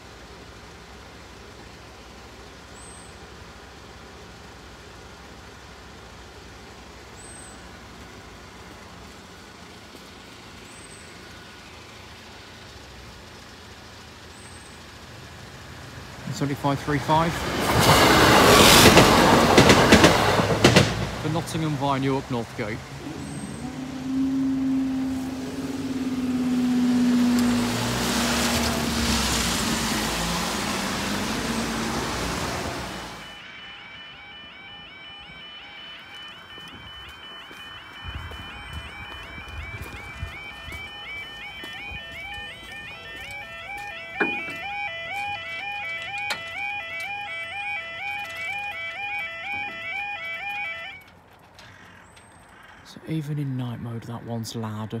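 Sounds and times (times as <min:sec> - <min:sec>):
cars idling: 0:00.0 - 0:55.0
road traffic hum: 0:00.0 - 0:55.0
car tyres hissing on wet road: 0:24.6 - 0:33.2.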